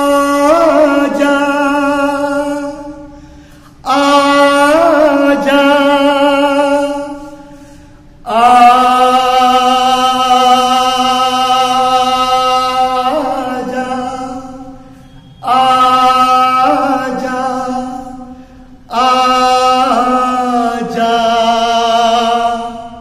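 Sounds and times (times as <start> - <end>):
man singing classical unaccompanied: 0.0 - 7.6, 8.2 - 23.0
short breaths: 3.1 - 3.8, 7.2 - 8.2, 18.3 - 18.8.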